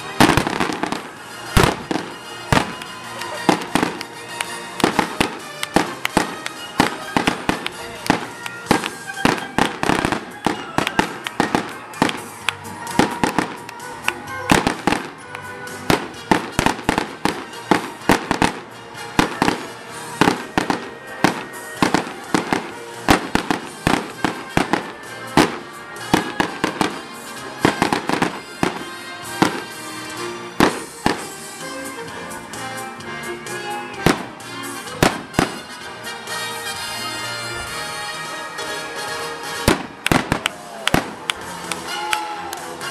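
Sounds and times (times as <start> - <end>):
fireworks bangs and crackles: 0.0 - 31.6, 33.9 - 37.5, 39.2 - 42.8
music: 0.0 - 42.9.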